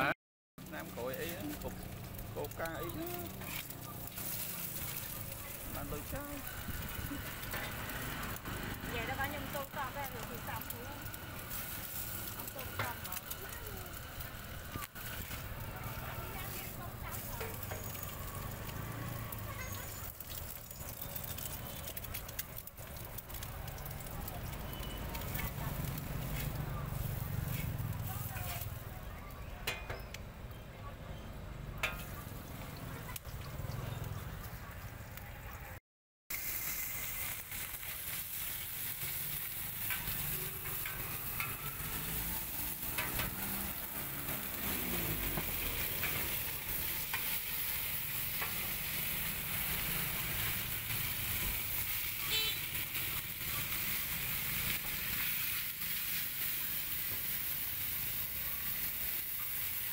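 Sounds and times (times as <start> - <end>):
oil sizzling in a wok: 0.6 - 30.6, 31.3 - 59.9
metal spatula scraping: 3.2 - 5.3, 37.1 - 51.2.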